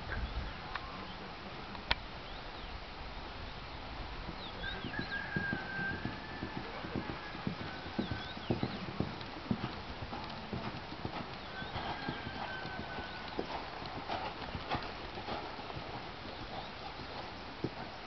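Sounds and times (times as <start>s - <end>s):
horse hoofbeats on sand: 4.2s - 18.0s.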